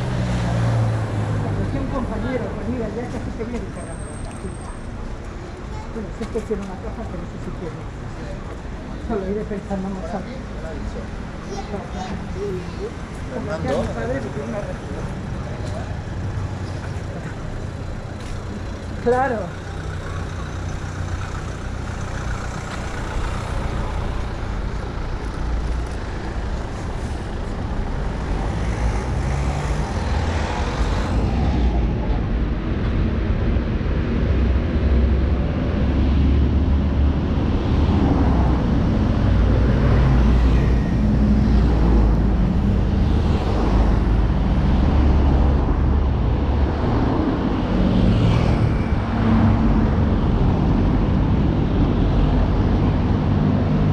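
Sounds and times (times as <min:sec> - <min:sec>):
city street traffic: 0:00.0 - 0:53.9
heavy vehicle engine rumble: 0:00.0 - 0:53.9.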